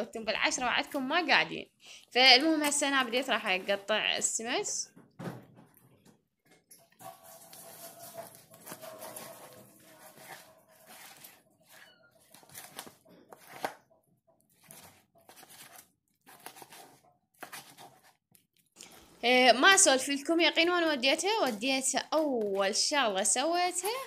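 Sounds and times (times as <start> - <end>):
knife slicing fish: 7.0 - 13.8, 14.5 - 18.2.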